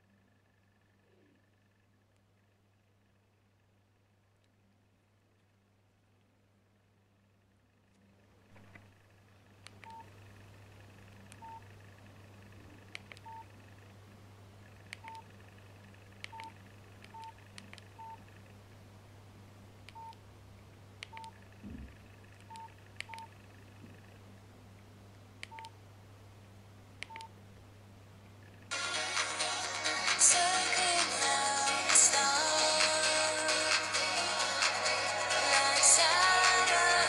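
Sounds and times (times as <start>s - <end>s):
low steady hum: 0.0s - 37.0s
phone keypad beeps: 9.8s - 10.0s, 11.4s - 11.6s, 13.2s - 13.4s, 15.0s - 15.2s, 17.1s - 17.3s, 18.0s - 18.2s, 19.9s - 20.2s, 21.1s - 21.3s, 22.5s - 23.3s, 25.5s - 25.7s, 27.0s - 27.3s.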